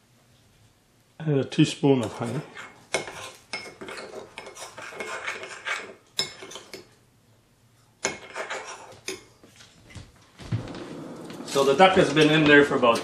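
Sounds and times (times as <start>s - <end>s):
spoon scraping ceramic bowl: 2.0s - 6.9s, 8.0s - 9.3s.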